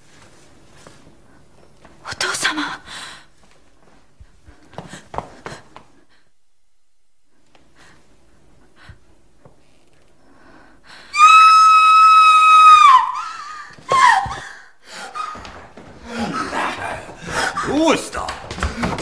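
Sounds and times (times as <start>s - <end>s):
woman screaming: 11.1s - 14.5s.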